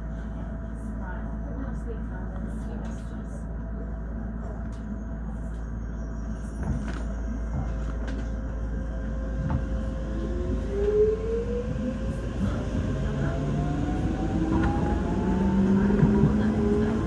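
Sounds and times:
train low rumble: 0:00.0 - 0:17.0
traction motors whine: 0:04.7 - 0:17.0.

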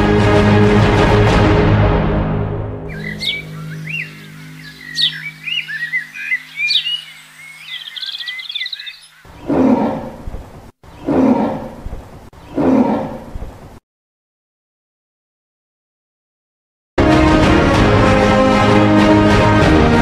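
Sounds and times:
birds chirping: 0:02.9 - 0:13.6
big cat roar-grunts: 0:09.4 - 0:10.3, 0:11.0 - 0:11.9, 0:12.5 - 0:13.3.

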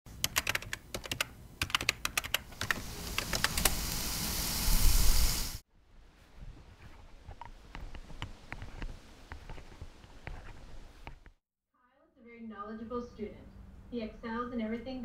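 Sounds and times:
keyboard typing clicks: 0:00.2 - 0:03.8
meat sizzling on charcoal grill: 0:02.8 - 0:05.6.

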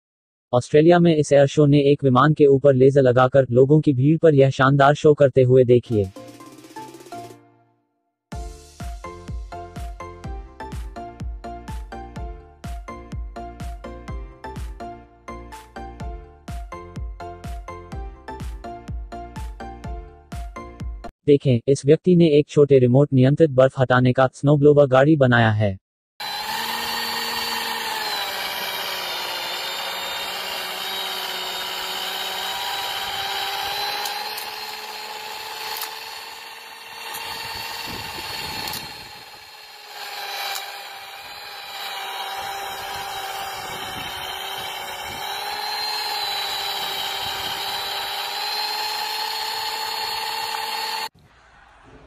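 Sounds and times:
model snowblower motor whining: 0:26.2 - 0:51.1.

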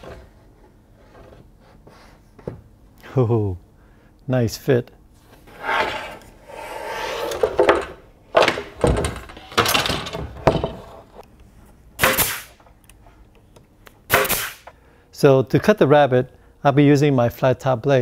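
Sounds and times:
wood scraping on wood: 0:05.4 - 0:07.8
wooden knocks and thud: 0:07.5 - 0:10.9.

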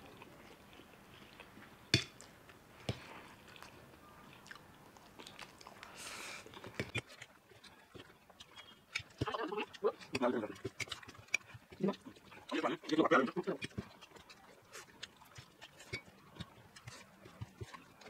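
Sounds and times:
quiet chewing: 0:00.0 - 0:18.0.

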